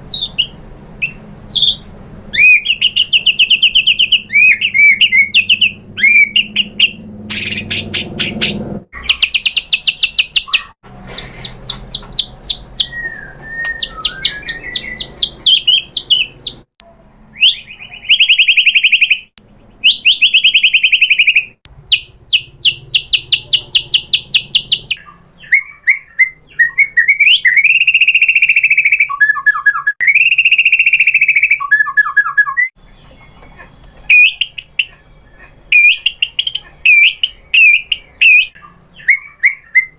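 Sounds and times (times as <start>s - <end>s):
songbird singing trills and whistles: 0.0s - 16.7s, 17.3s - 39.9s.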